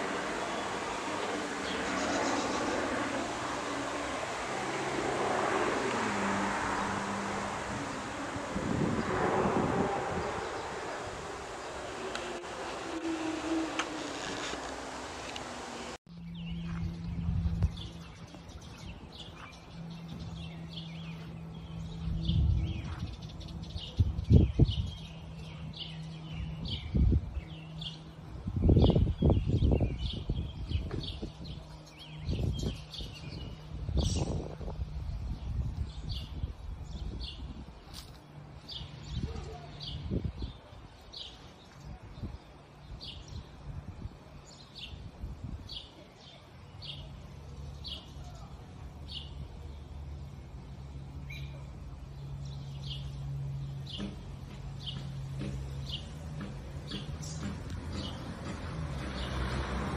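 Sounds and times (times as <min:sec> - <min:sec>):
distant turboprop drone: 0:00.0 - 0:24.2
low rumbles: 0:00.0 - 0:27.4
birds chirping: 0:00.0 - 0:59.9.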